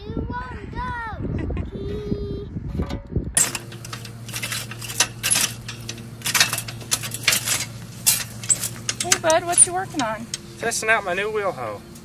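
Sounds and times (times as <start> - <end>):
wheel hoe clinking and rattling: 2.8 - 12.0.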